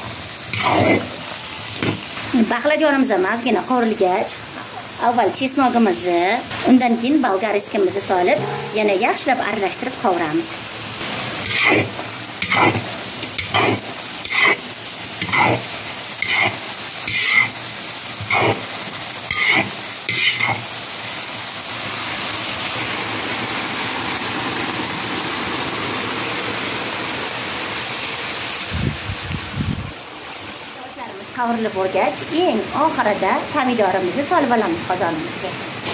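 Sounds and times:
vegetables sizzling in oil: 0:00.0 - 0:35.9
stirring strokes against pot: 0:00.5 - 0:01.2, 0:11.4 - 0:20.7.

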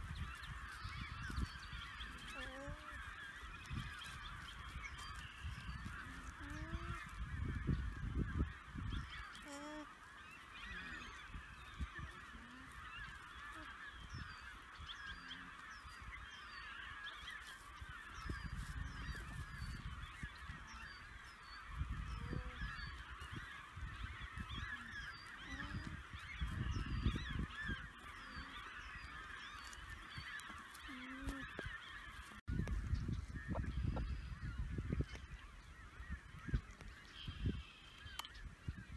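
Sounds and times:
chorus of bird calls: 0:00.0 - 0:38.9
wind gusting on microphone: 0:00.0 - 0:38.9.

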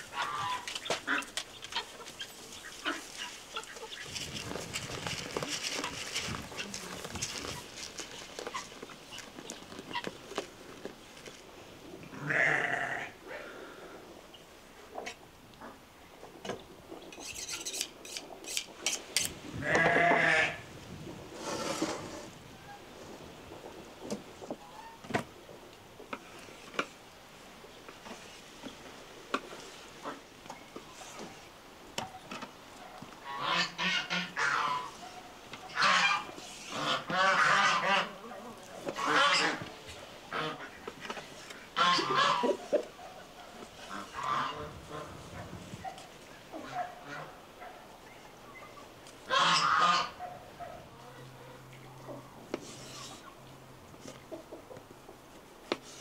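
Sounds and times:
farm animal bleating: 0:12.1 - 0:13.2, 0:19.6 - 0:20.6
goose honking: 0:33.2 - 0:35.0, 0:35.7 - 0:38.3, 0:38.9 - 0:39.7, 0:41.8 - 0:42.8, 0:43.8 - 0:45.2, 0:49.3 - 0:50.2.

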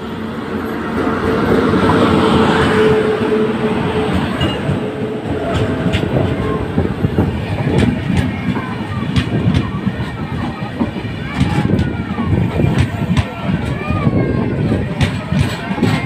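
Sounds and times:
train wheels rumbling on rail: 0:00.0 - 0:16.0
wheel clicks on rail: 0:07.7 - 0:16.0.

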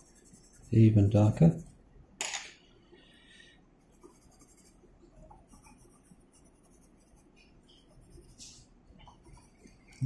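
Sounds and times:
pencil scratching on paper: 0:00.0 - 0:01.8, 0:03.8 - 0:10.0.

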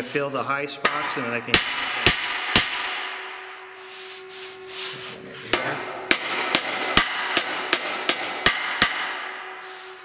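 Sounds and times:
gloved hand rubbing steel tube: 0:03.2 - 0:05.6, 0:09.4 - 0:10.0
hammer tapping metal tube: 0:05.5 - 0:09.3.

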